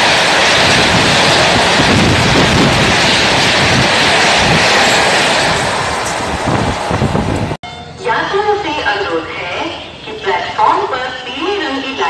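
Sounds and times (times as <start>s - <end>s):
wind buffeting microphone: 0.0s - 7.6s
train rushing past: 0.0s - 12.0s.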